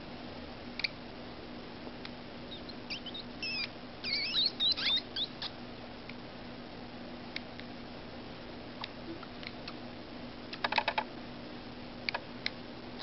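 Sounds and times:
baby hedgehogs squeaking: 0:02.5 - 0:05.6.

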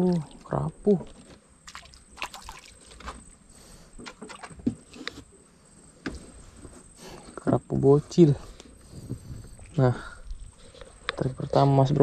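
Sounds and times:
small water splashes: 0:01.6 - 0:03.3, 0:04.0 - 0:05.0.

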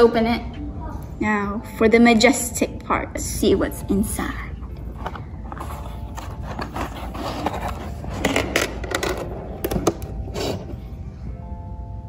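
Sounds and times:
cardboard scraping and rubbing: 0:05.0 - 0:08.5.

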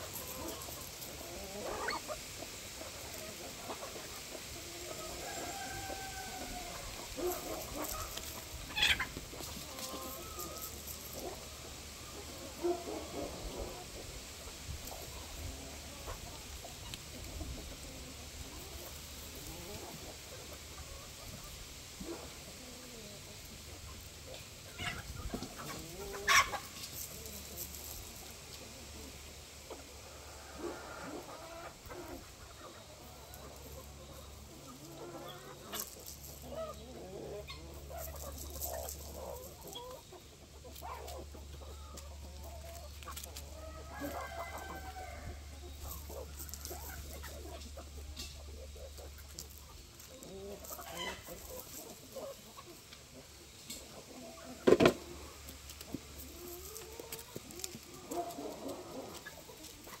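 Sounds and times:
chickens clucking: 0:00.0 - 1:00.0
rooster crowing: 0:05.0 - 0:06.9, 0:43.6 - 0:45.6.

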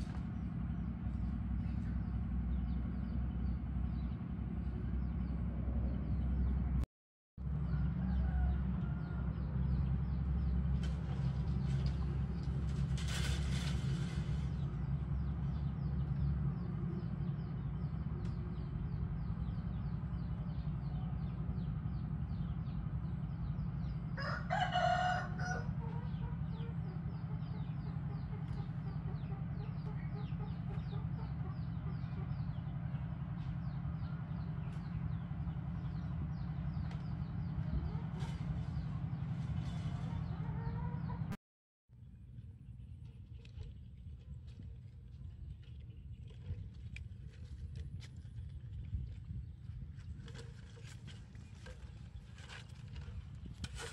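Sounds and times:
steady low hum: 0:00.0 - 0:06.8, 0:07.4 - 0:53.9
rooster crowing: 0:07.5 - 0:09.4, 0:24.2 - 0:25.9.

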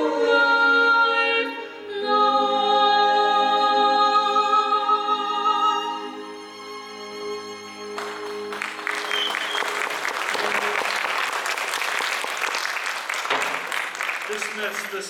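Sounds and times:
audience applauding: 0:07.7 - 0:15.0.

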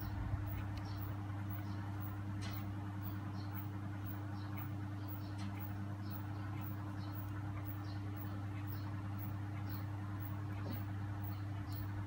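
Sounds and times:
steady low hum: 0:00.0 - 0:12.0.

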